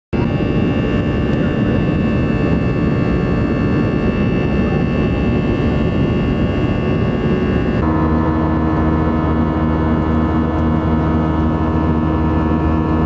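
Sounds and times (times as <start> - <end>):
jet engine cabin noise: 0.1 - 13.0
thin steady whine: 0.2 - 13.0.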